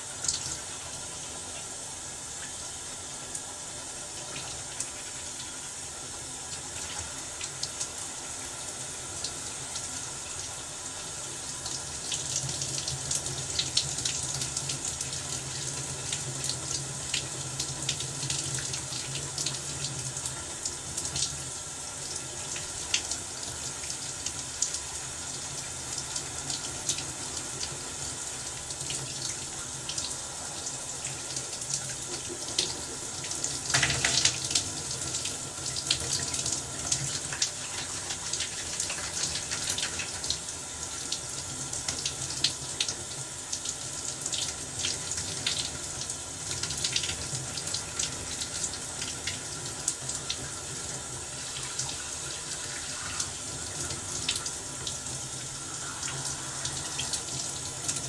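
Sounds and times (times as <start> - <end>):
shower spray hissing: 51.2 - 58.0.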